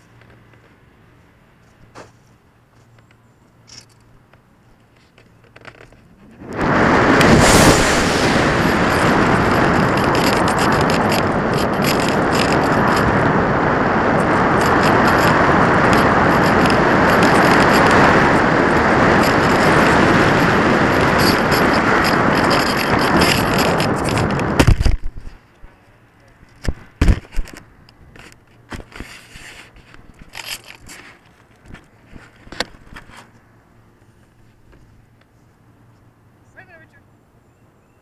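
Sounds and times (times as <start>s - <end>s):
wind rushing over camera: 5.5s - 33.3s
sharp whoosh: 6.4s - 13.5s.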